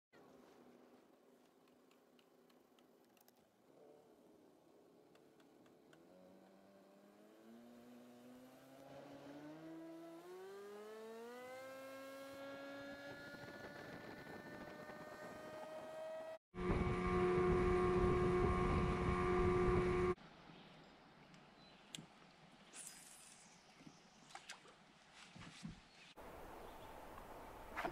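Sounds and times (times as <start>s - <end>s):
outboard motor running: 16.6s - 20.1s.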